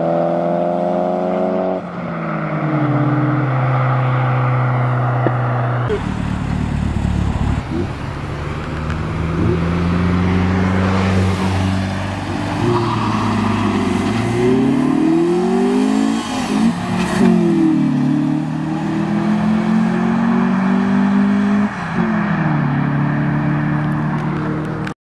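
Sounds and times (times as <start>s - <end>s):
car engine revving past: 9.1s - 24.7s.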